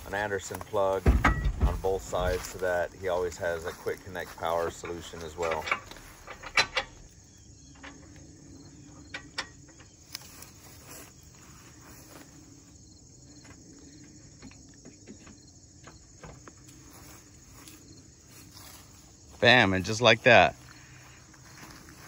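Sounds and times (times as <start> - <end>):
insects chirping in grass: 0.0 - 22.0
winch handling clicks and knocks: 4.6 - 8.3, 9.0 - 10.3.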